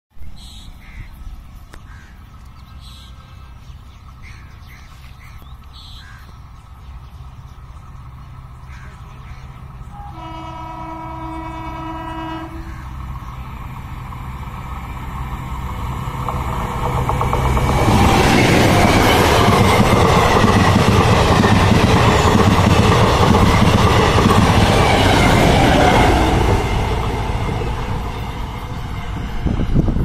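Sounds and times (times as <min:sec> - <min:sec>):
train engine rumble: 0:05.1 - 0:30.0
train horn blast: 0:09.9 - 0:13.0.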